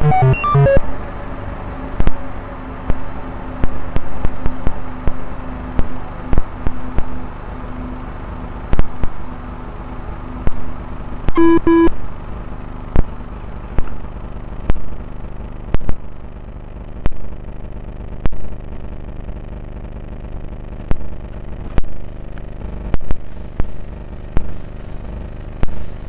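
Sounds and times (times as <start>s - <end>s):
short electronic beeps: 0.0s - 0.8s, 11.4s - 11.9s.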